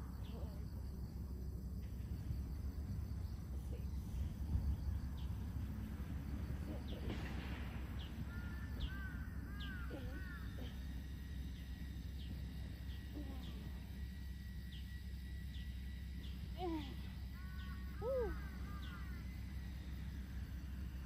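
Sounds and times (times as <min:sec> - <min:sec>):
low background rumble: 0:00.0 - 0:21.0
bird calling: 0:06.5 - 0:14.1, 0:14.7 - 0:21.0.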